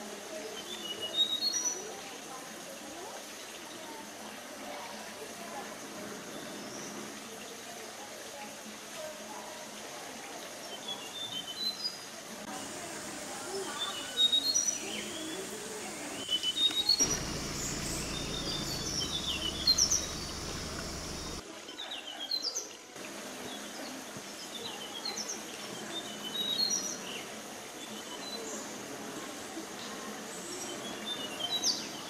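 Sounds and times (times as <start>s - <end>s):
forest birds chirping: 12.6s - 21.4s
low steady hum: 15.0s - 21.4s.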